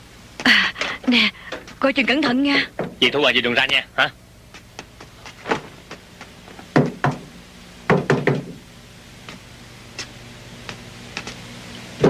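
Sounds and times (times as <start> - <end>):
knocking on wooden door: 6.7 - 7.3, 7.9 - 8.6.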